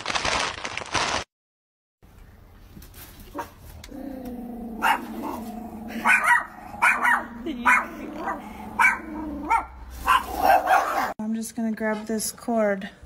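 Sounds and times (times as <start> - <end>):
small dogs growling: 3.8 - 9.6
sharp dog barks: 6.0 - 7.9, 8.8 - 11.1.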